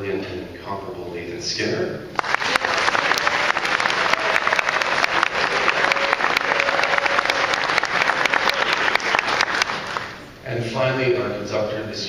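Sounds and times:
audience applauding: 0:02.2 - 0:10.3.

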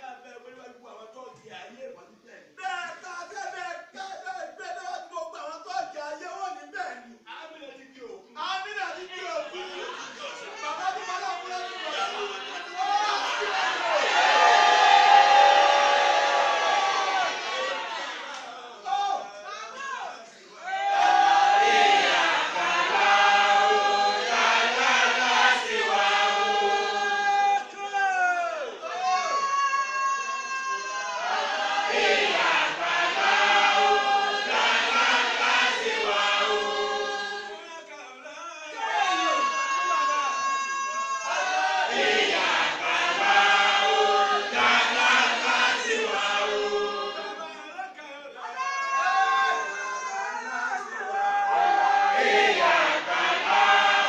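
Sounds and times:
group chanting held notes: 0:11.4 - 0:18.8, 0:20.5 - 0:27.7, 0:31.0 - 0:37.6, 0:41.0 - 0:47.6, 0:51.0 - 0:54.0.

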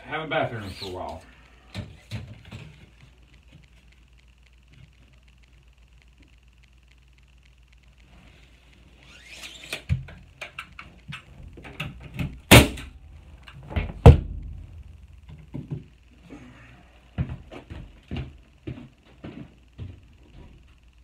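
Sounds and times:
wooden board knocks and thuds: 0:13.7 - 0:14.6.

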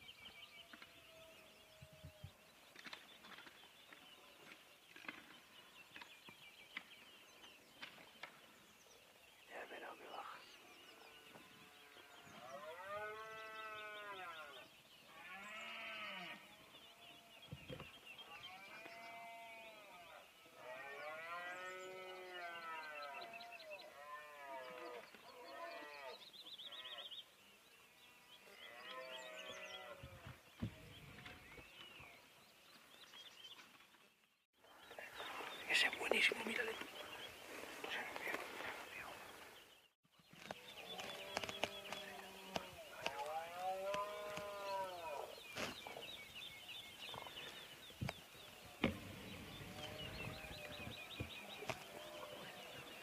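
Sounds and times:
small birds chirping: 0:00.0 - 0:53.0
dull thump: 0:48.8 - 0:50.4.

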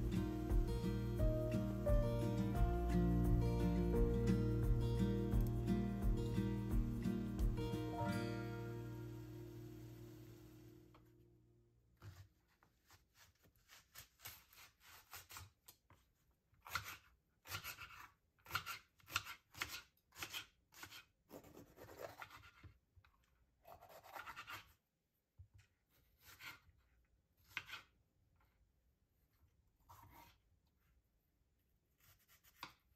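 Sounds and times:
knife cutting on a board: 0:12.0 - 0:16.0, 0:16.6 - 0:22.8, 0:23.6 - 0:24.8, 0:25.9 - 0:26.7, 0:27.4 - 0:28.0, 0:29.8 - 0:30.4, 0:32.0 - 0:32.9.

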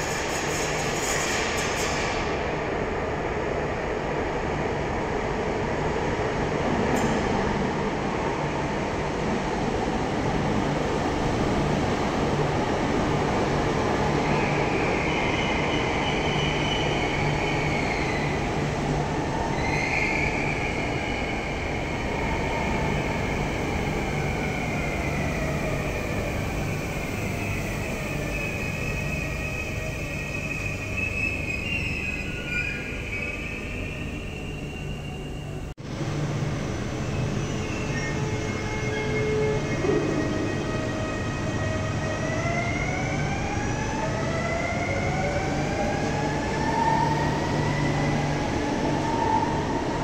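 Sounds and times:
train wheels rumbling on rail: 0:00.0 - 0:50.0.

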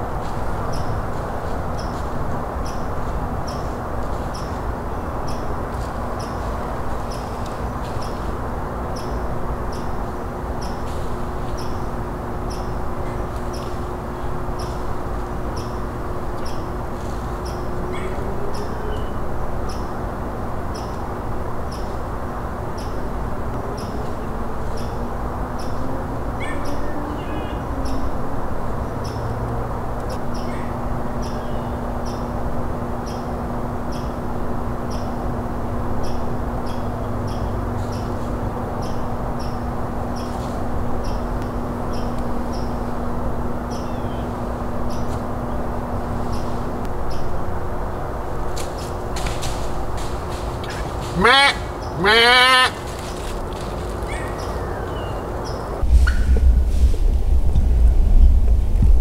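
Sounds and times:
low outdoor rumble: 0:00.0 - 0:59.0
faint hum sliding up in pitch: 0:23.5 - 0:50.4, 0:53.0 - 0:59.0
short bird calls: 0:50.6 - 0:53.4.

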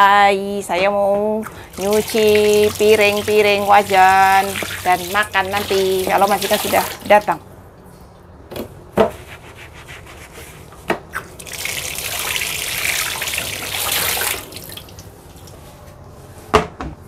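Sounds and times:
tap running into a sink: 0:01.8 - 0:07.1.

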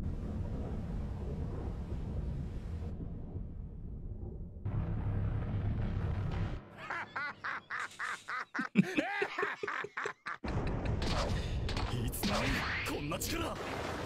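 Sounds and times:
dense rumbling noise: 0:00.0 - 0:06.7
person laughing: 0:06.8 - 0:11.0.

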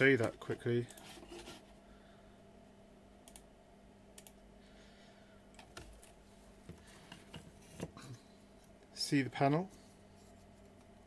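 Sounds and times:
low steady hum: 0:00.0 - 0:11.0
keyboard and mouse clicks: 0:04.2 - 0:04.4.

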